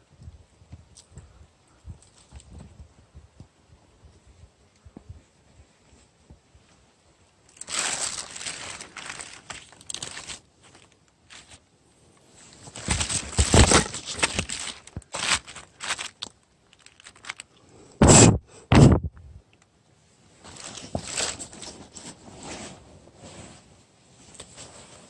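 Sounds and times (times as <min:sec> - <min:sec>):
close rustling and crunching: 0:07.4 - 0:17.6, 0:20.4 - 0:25.0.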